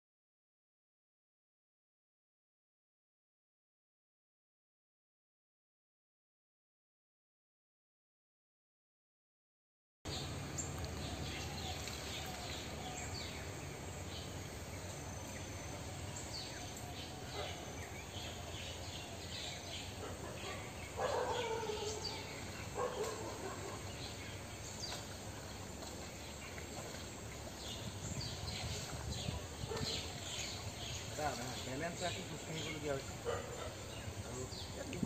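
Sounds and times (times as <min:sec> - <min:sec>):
small birds chirping: 0:10.1 - 0:35.0.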